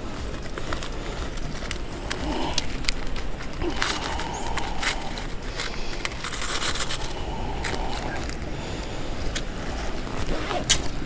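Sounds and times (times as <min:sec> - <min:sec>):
low background rumble: 0:00.0 - 0:11.0
plastic packet clicks and scrapes: 0:00.0 - 0:11.0.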